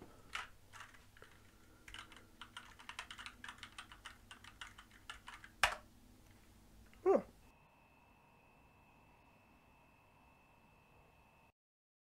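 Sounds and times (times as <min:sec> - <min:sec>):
computer keyboard typing: 0:00.3 - 0:05.9.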